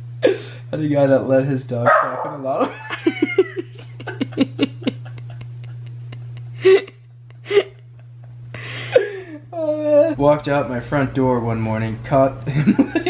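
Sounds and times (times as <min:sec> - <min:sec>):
breathy gasp: 0:00.2 - 0:00.7, 0:08.6 - 0:09.5
man laughing hard: 0:02.5 - 0:10.2, 0:12.5 - 0:13.0.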